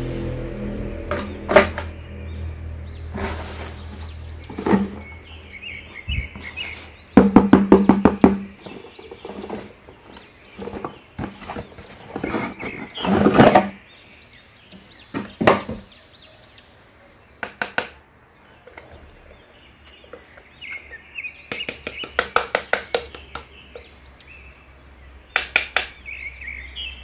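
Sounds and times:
toy box knocks and scrapes: 0:04.4 - 0:05.1, 0:07.2 - 0:13.8.

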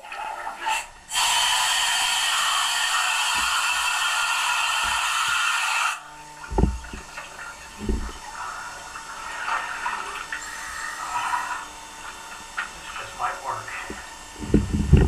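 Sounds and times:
water sloshing and splashing: 0:06.2 - 0:15.0
low thumps: 0:06.5 - 0:07.1, 0:07.7 - 0:08.2, 0:13.9 - 0:15.0.

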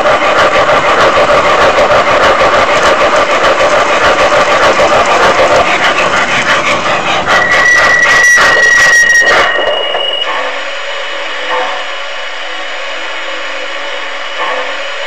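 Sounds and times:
model train wheels clicking: 0:00.0 - 0:10.6.

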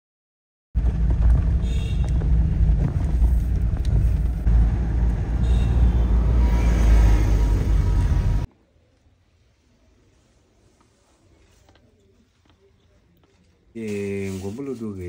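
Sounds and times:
road traffic rumble: 0:00.8 - 0:08.5.

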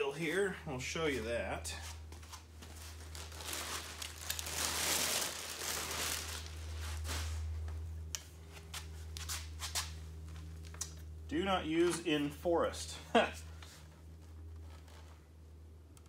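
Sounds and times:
low hum: 0:00.0 - 0:16.0
plastic wrapping crinkling: 0:02.4 - 0:07.6.

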